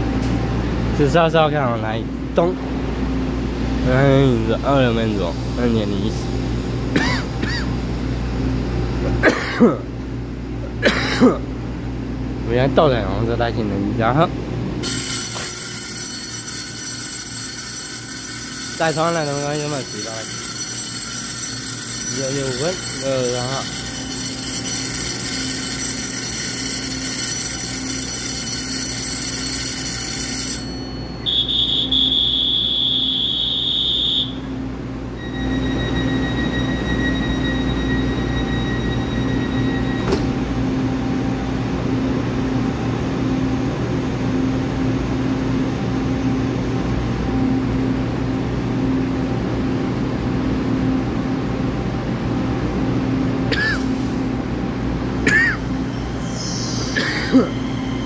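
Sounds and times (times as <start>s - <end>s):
train electrical hum: 0.0s - 58.0s
door-closing buzzer: 14.8s - 34.5s, 35.2s - 40.7s, 55.6s - 58.0s
departure bell ringing: 14.8s - 46.6s, 54.3s - 58.0s.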